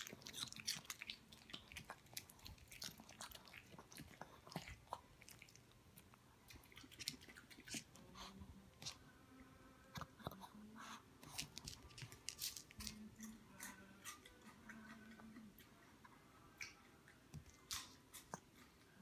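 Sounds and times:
dog chewing crunchy food: 0:00.0 - 0:08.0, 0:11.2 - 0:15.8.

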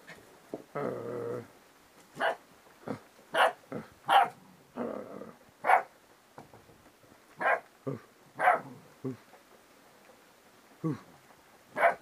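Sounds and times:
puppy growl: 0:00.7 - 0:01.5, 0:02.8 - 0:05.5.

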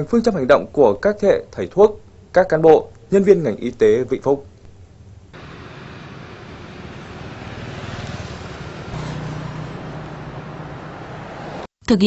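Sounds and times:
road traffic passing: 0:05.0 - 0:11.8
engine humming: 0:05.2 - 0:11.7.

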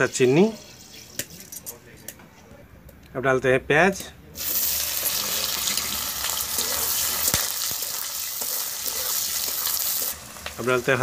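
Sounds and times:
onions sizzling in hot oil: 0:00.0 - 0:01.3, 0:04.4 - 0:11.0.

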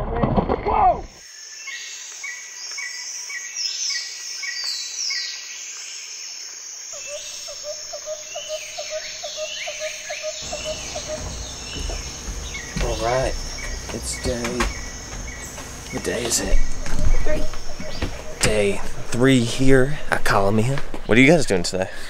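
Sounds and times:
insect trill: 0:01.1 - 0:20.0
low repeated chirp: 0:07.0 - 0:19.6
birds whistling calls: 0:07.0 - 0:19.8
low background rumble: 0:10.4 - 0:20.0.

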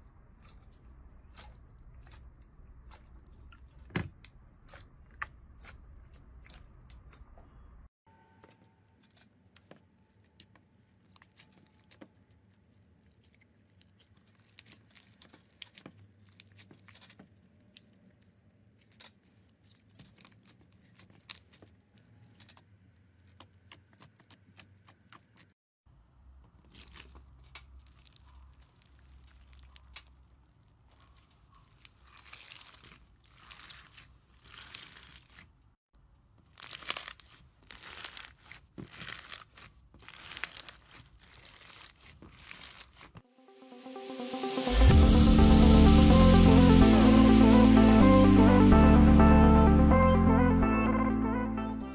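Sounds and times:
beaded slime crunching: 0:10.3 - 0:22.6, 0:26.6 - 0:35.7, 0:36.4 - 0:43.2
slime squishing and popping: 0:30.9 - 0:35.5, 0:36.4 - 0:43.2.

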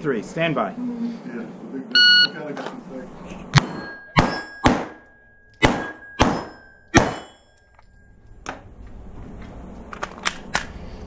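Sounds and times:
pistol shots echoing: 0:03.6 - 0:05.0, 0:05.6 - 0:07.4
steel plates ringing: 0:03.6 - 0:08.5.

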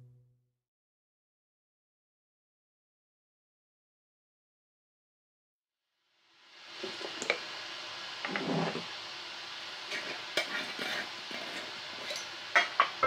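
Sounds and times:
faint steady hiss: 0:06.0 - 0:13.0
glass scraping on table: 0:08.2 - 0:08.9.

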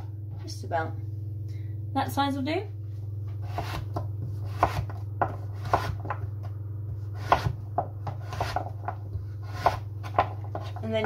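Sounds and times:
steady low hum: 0:00.0 - 0:11.0
knife chopping on plastic board: 0:03.4 - 0:06.3, 0:06.9 - 0:11.0.

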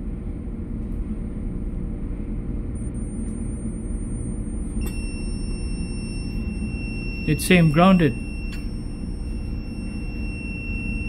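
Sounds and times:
low machinery hum: 0:00.0 - 0:11.0
high-pitched tester beep: 0:02.8 - 0:11.0
tester click: 0:04.8 - 0:05.1.

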